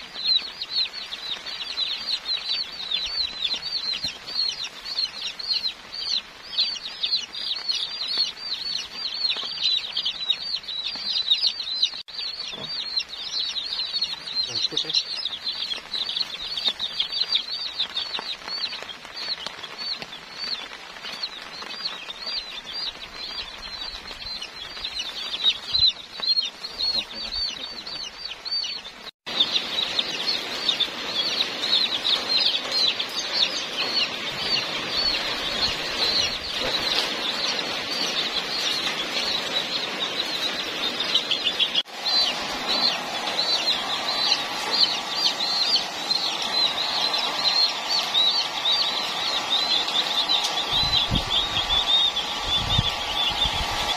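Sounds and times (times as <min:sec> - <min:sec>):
chicks peeping: 0:00.0 - 0:53.9
hair dryer blowing: 0:42.0 - 0:53.9.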